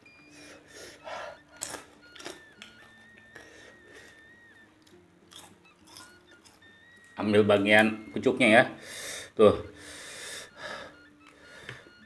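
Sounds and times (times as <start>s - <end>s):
chewing and mouth smacking: 1.3s - 7.2s.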